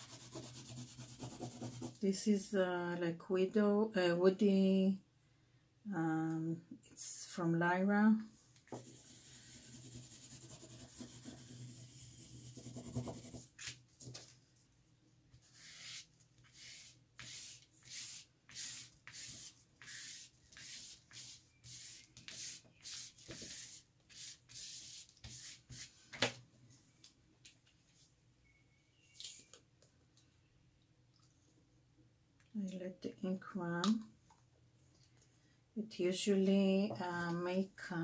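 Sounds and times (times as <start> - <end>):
crayon scribbling on paper: 0.0 - 2.0, 8.8 - 13.4
brush sweeping across paper: 15.4 - 25.9.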